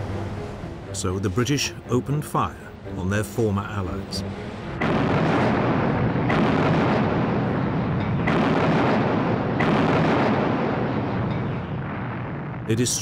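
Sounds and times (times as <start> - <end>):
rolling echo: 4.1 - 12.7
heavy guns booming: 4.7 - 12.7.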